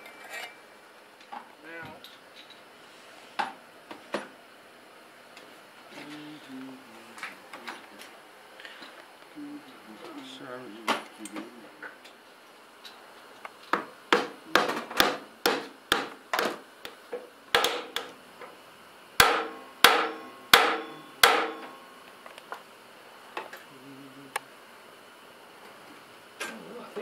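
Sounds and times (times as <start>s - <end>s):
hammer striking metal: 14.1s - 16.1s, 19.2s - 21.8s.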